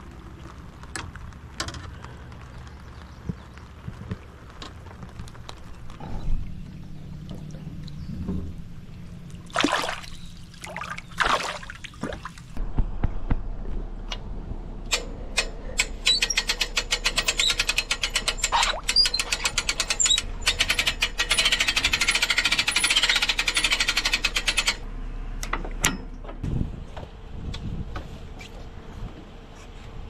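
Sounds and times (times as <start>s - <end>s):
rapid mechanical clicking: 14.9s - 24.8s.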